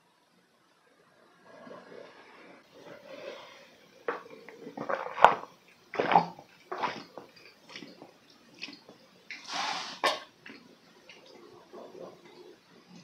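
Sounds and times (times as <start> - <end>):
person gulping juice: 4.0 - 13.0.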